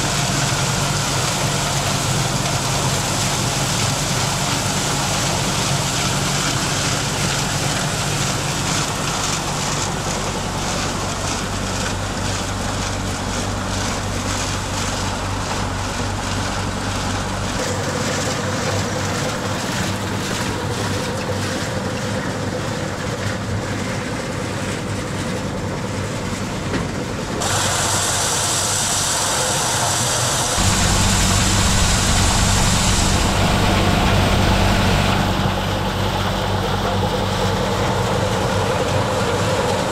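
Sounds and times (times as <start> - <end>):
machine humming: 27.4 - 39.9.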